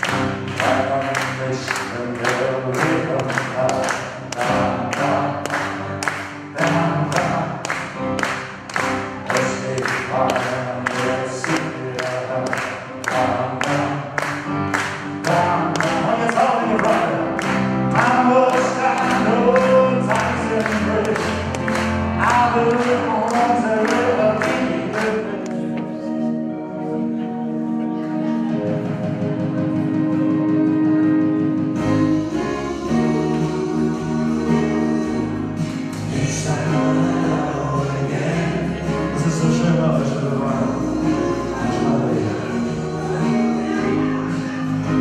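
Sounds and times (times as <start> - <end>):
music with steady beat: 0.0 - 45.0
group of people singing along: 32.1 - 45.0.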